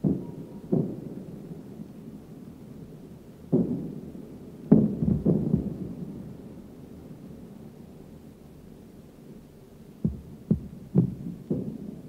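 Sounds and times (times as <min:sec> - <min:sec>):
distant anti-aircraft gun booms: 0:04.7 - 0:05.9.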